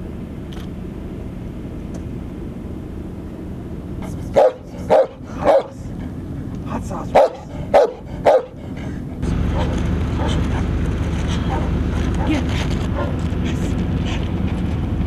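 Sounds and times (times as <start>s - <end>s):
low background rumble: 0.0s - 15.0s
dog barking: 4.1s - 5.9s, 6.9s - 8.6s, 9.5s - 10.7s, 11.4s - 13.2s.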